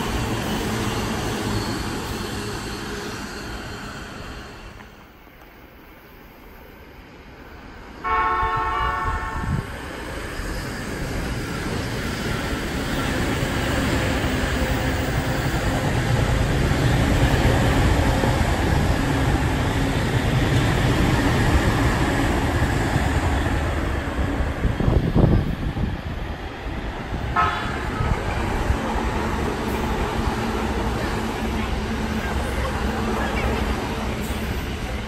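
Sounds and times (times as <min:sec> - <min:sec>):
train running noise: 0:00.0 - 0:35.0
train horn: 0:08.0 - 0:09.7, 0:27.3 - 0:28.2.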